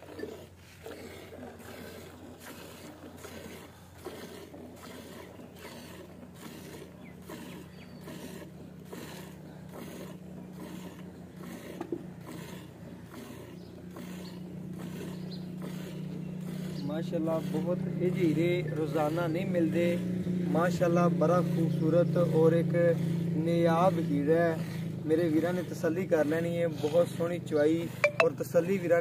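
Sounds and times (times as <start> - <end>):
milk squirting into bucket: 0.0 - 19.5.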